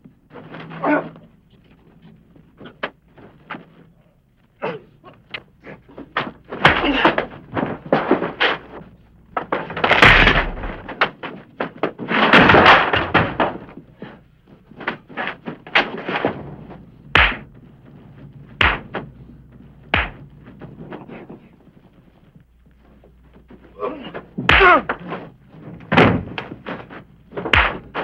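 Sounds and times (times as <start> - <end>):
crashing scuffling noises: 5.7 - 28.0
sharp punch blows with thuds: 17.2 - 17.5, 18.6 - 19.0, 19.9 - 20.3, 24.5 - 24.9, 27.5 - 28.0.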